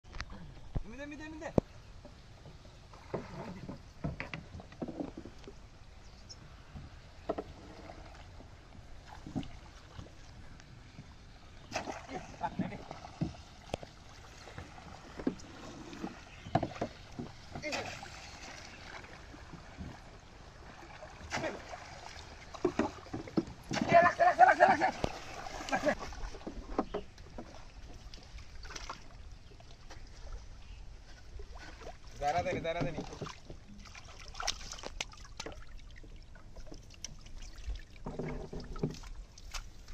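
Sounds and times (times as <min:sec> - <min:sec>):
pole splashing in water: 0:11.7 - 0:20.1, 0:20.8 - 0:27.6, 0:32.8 - 0:35.8.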